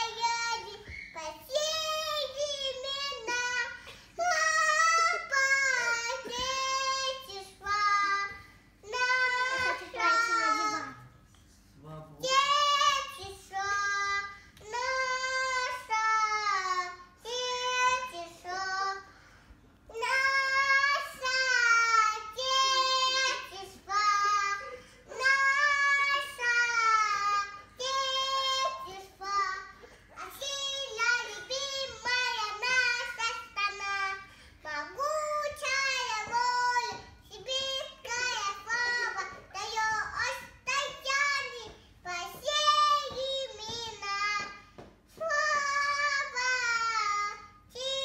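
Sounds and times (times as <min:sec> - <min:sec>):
girl singing into a microphone: 0:00.0 - 0:11.0, 0:12.2 - 0:19.3, 0:19.9 - 0:48.0
short breaths: 0:19.0 - 0:19.8, 0:24.6 - 0:25.1, 0:34.2 - 0:34.6.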